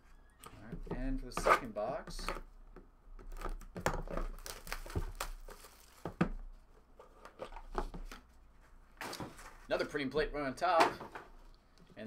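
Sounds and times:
cardboard rustling and crinkling: 3.3s - 9.8s.

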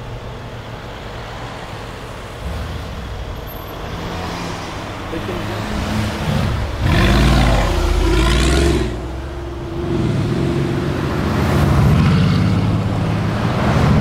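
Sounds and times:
car engine and exhaust revving: 0.0s - 14.0s.

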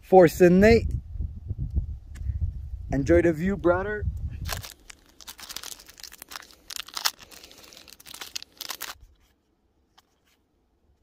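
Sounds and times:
foil wrapper crinkling and tearing: 4.4s - 9.2s.

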